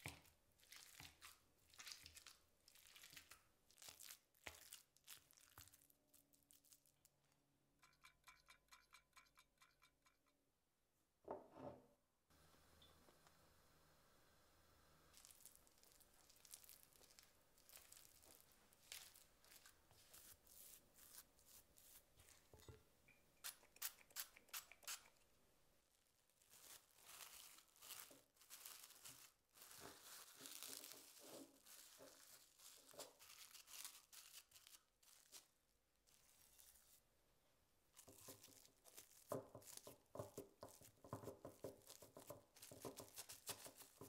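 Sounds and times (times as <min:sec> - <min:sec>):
cling film crinkling and tearing: 0:15.1 - 0:21.4, 0:26.4 - 0:36.9.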